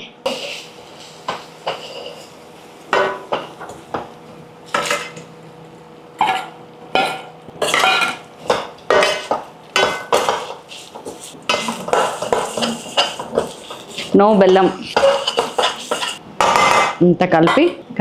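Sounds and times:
spoon scraping and clinking a pan: 1.3 - 2.3, 6.2 - 16.9.

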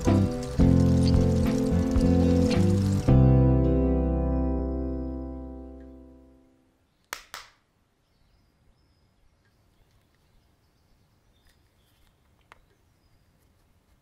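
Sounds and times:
film score music: 0.0 - 6.5.

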